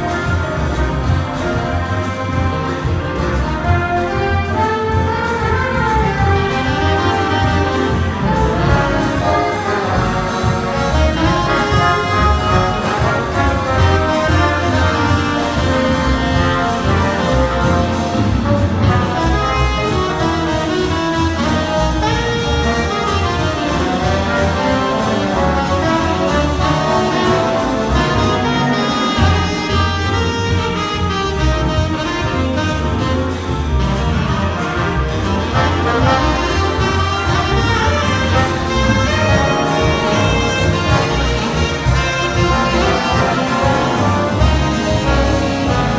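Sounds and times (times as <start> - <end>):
big band jazz: 0.0 - 45.9.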